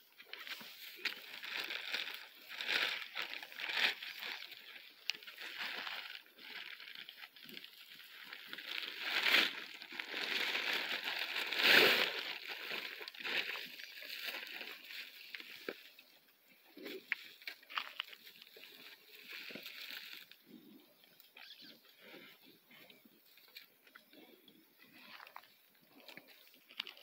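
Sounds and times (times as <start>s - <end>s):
crinkling burst: 0.1s - 16.1s.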